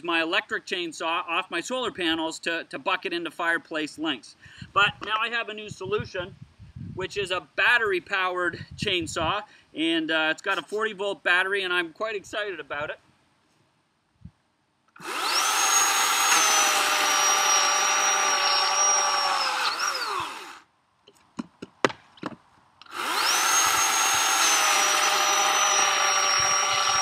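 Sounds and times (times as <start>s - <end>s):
electric chainsaw cutting log: 15.0s - 20.7s, 22.8s - 27.0s.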